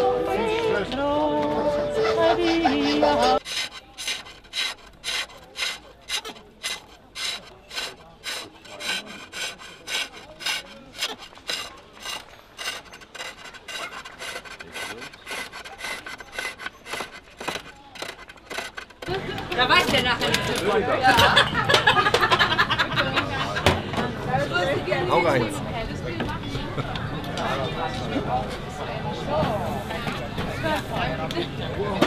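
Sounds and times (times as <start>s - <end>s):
gouge rasping on spinning wood: 2.4s - 19.8s.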